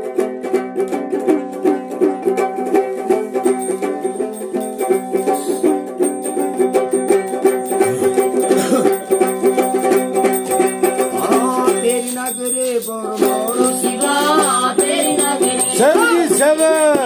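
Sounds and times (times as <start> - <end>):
plucked lute strumming: 0.0 - 17.0
man singing: 11.0 - 17.0.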